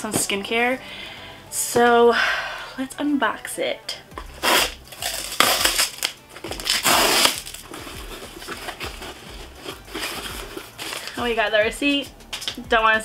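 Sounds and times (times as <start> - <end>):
handling of cardboard box: 4.2 - 11.4
cardboard box ripping: 4.4 - 11.2.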